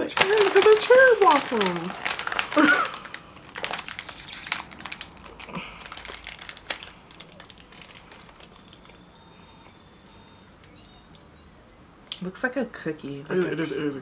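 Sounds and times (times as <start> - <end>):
snack wrapper crinkling: 0.0 - 9.1
crisp cookie bites: 0.0 - 9.2.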